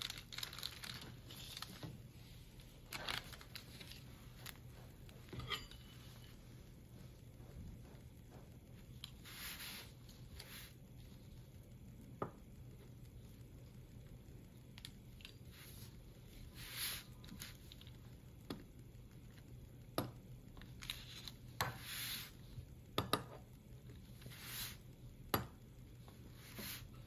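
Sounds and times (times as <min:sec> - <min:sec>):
pizza cutter swishing through pastry: 0:04.3 - 0:10.9.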